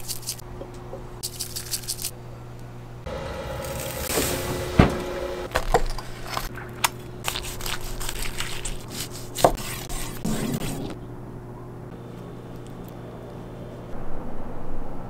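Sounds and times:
knife cutting crisp chicken skin: 7.2s - 10.2s.

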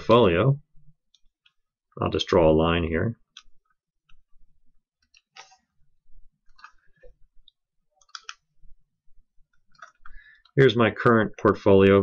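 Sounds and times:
computer mouse clicks: 8.0s - 8.5s.

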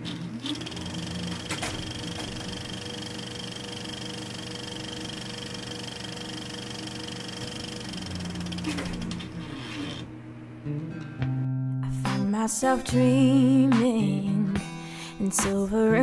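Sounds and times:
mechanical whirr with rattle: 0.0s - 10.1s
held tones: 0.4s - 10.0s.

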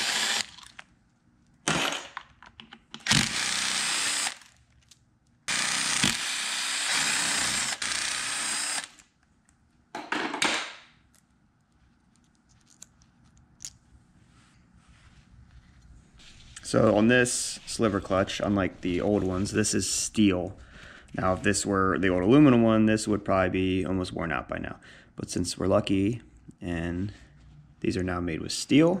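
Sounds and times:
cordless drill bursts: 0.0s - 0.7s, 3.0s - 4.4s, 5.5s - 9.0s.

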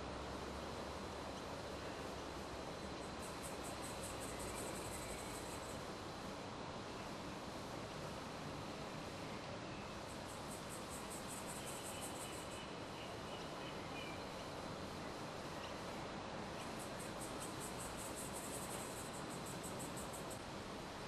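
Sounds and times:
background hiss: 0.0s - 21.0s
insect chirping: 0.4s - 6.3s, 9.1s - 20.9s.

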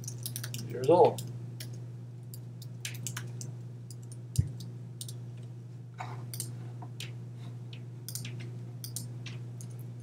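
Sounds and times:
steady low hum: 0.0s - 10.0s
keyboard keystrokes and clicks: 8.1s - 9.8s.

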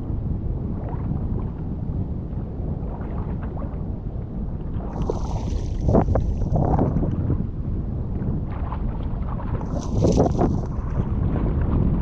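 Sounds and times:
wind buffeting the microphone: 0.0s - 12.0s
water splashing against hull: 2.7s - 7.5s, 8.1s - 12.0s.

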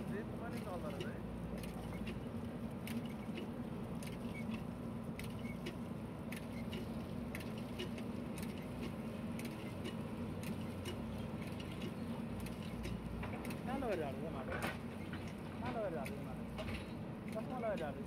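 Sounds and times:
diesel engine under load: 0.0s - 18.0s
sharp clicks and rattles: 0.1s - 18.0s.

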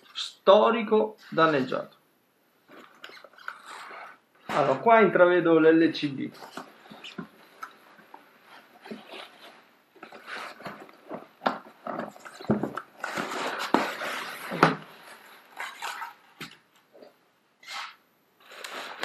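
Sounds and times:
packing materials rustling: 6.0s - 16.7s.

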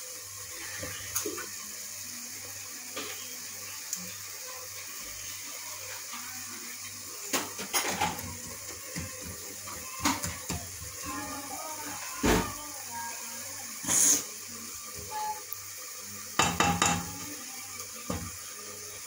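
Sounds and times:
wooden spoon knocking in pot: 16.4s - 17.2s.

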